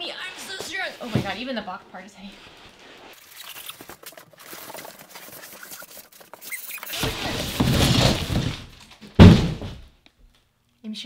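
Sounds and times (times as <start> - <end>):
cardboard box scraping: 2.4 - 9.7
heavy box thud: 6.9 - 9.9.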